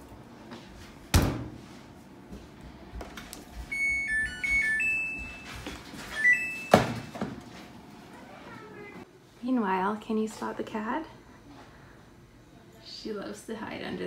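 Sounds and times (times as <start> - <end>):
control panel beeping tune: 3.7 - 5.4, 6.2 - 6.7.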